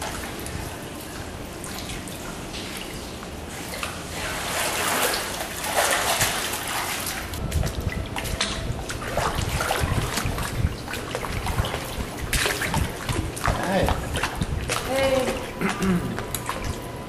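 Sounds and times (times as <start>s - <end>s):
pool water splashing: 0.0s - 17.0s.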